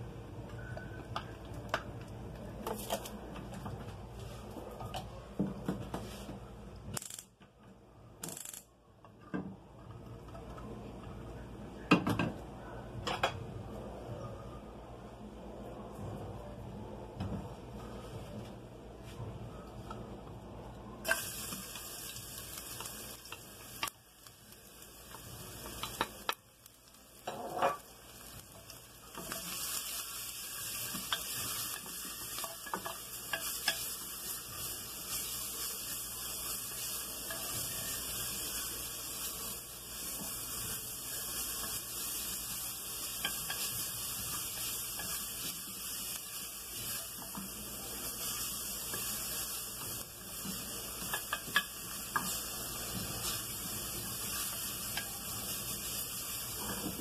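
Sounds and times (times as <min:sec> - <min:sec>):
garlic sizzling in hot oil: 0:21.0 - 0:57.0.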